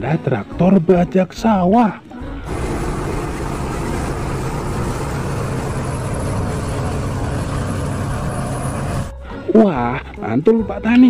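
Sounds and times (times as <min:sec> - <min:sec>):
tractor diesel engine under load: 0:02.5 - 0:09.2.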